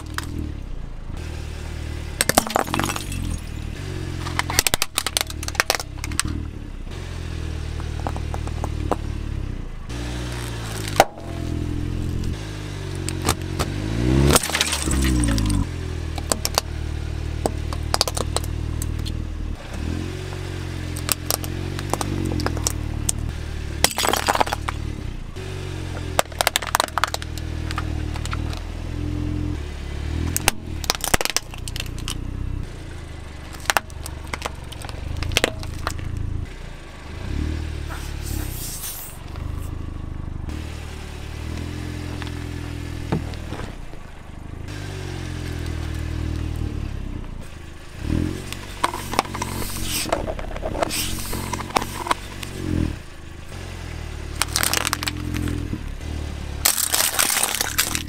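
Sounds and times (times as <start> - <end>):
car engine at a crawl: 0.0 - 58.0
plastic toys crushed under tyre: 2.2 - 3.6, 4.2 - 6.4, 13.1 - 16.7, 17.4 - 19.0, 20.9 - 23.2, 23.8 - 24.9, 26.0 - 28.6, 30.3 - 32.2, 33.4 - 36.2, 54.4 - 55.7, 56.6 - 58.0.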